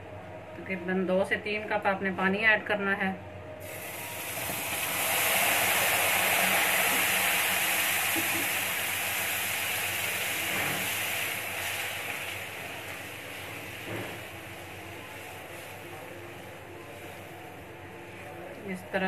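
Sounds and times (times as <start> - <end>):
water poured into pan: 3.6 - 12.6
semolina sizzling in hot oil: 3.6 - 17.6.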